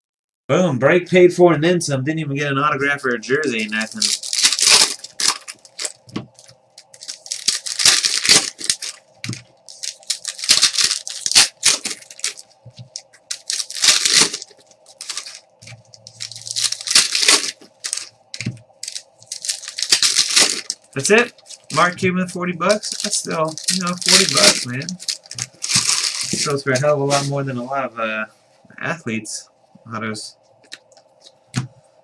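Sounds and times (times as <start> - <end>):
foil wrappers tearing and crinkling: 3.4 - 22.0, 22.6 - 27.3.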